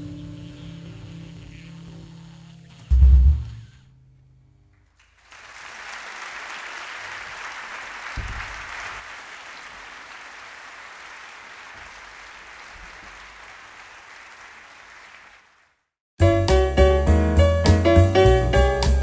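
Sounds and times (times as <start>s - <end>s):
low thump: 2.9s - 3.7s, 8.2s - 8.7s
audience applauding: 5.0s - 15.9s.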